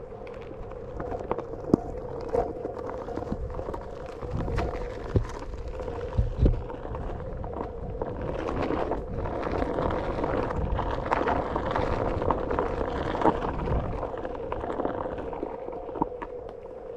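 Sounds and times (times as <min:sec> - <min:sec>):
tyre rumbling on dirt: 0:00.0 - 0:16.4.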